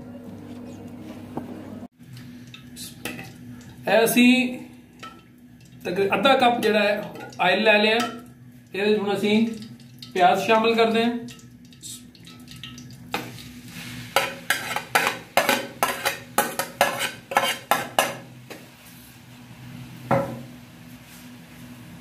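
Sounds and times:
onions sizzling in oil: 0:12.7 - 0:18.2.

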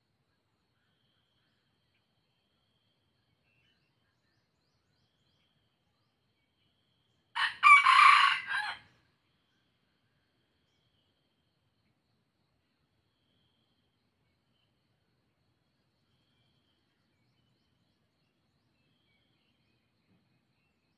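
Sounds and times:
rooster crowing: 0:07.4 - 0:08.9.

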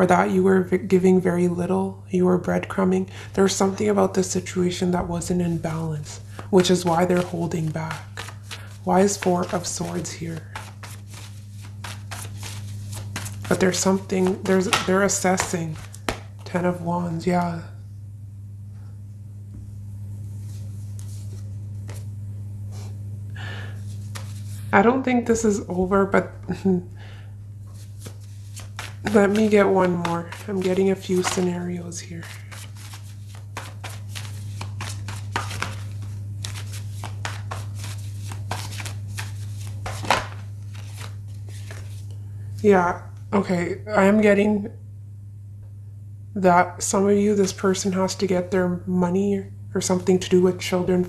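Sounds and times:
low electrical hum: 0:00.0 - 0:51.0
cards being shuffled: 0:05.5 - 0:16.6, 0:23.8 - 0:24.6, 0:27.7 - 0:42.2.

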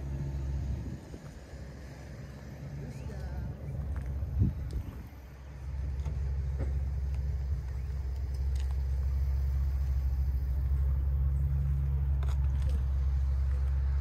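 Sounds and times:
low rumble: 0:00.0 - 0:14.0.

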